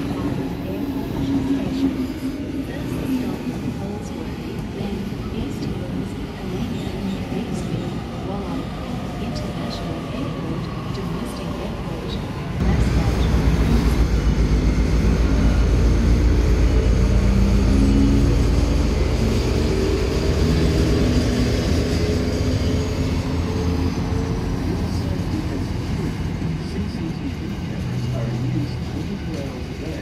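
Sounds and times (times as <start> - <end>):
diesel locomotive engine throbbing: 12.6 - 30.0.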